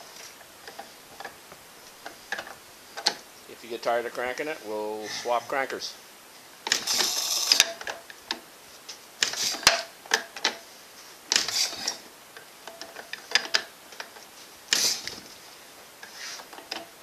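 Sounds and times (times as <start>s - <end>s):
engine being hand-cranked: 6.7s - 7.9s.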